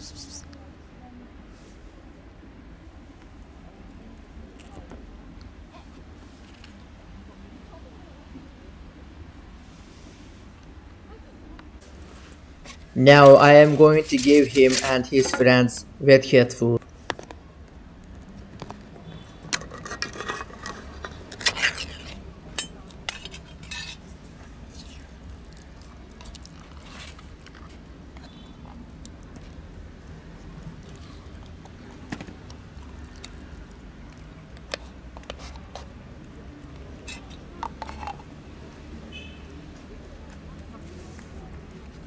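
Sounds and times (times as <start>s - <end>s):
metal tin clinks and scrapes: 19.5s - 24.0s.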